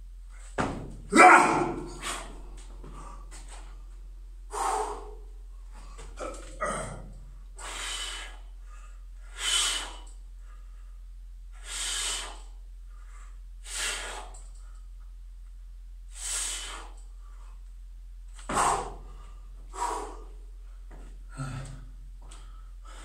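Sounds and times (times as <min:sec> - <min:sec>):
man breathing out hard: 0:04.5 - 0:10.8, 0:11.6 - 0:14.6, 0:18.5 - 0:20.5, 0:21.3 - 0:23.0.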